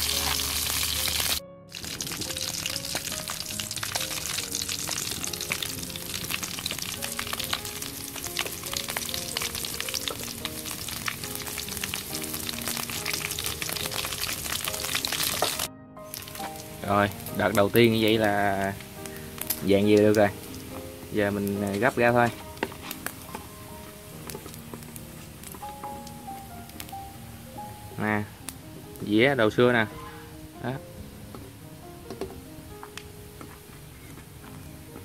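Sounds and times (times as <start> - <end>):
food deep-frying in oil: 0.0 - 23.3
soft background music: 0.0 - 35.0.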